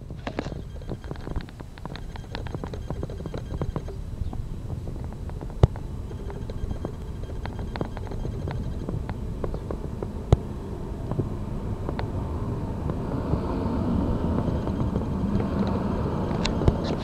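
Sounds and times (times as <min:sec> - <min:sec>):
car noise: 0:00.0 - 0:17.0
low street rumble: 0:00.0 - 0:17.0
sharp clicks: 0:00.2 - 0:10.4, 0:14.3 - 0:17.0.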